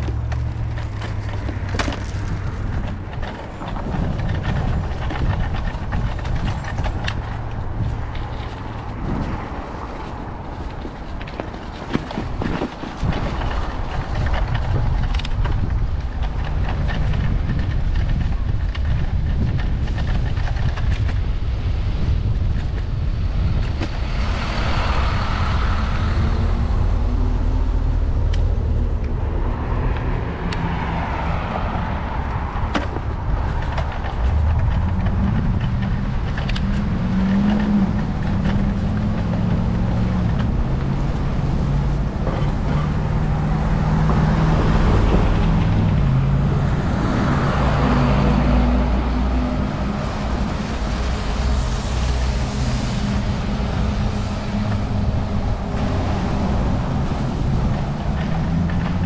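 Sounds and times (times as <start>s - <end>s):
constant low rumble: 0.0s - 59.0s
vehicles passing with tyre hiss: 21.2s - 59.0s.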